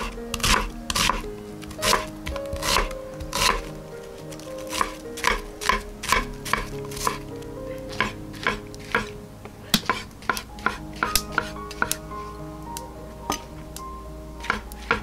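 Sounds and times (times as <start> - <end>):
knife chopping on wooden board: 0.3 - 1.2, 1.8 - 3.6, 4.6 - 7.2.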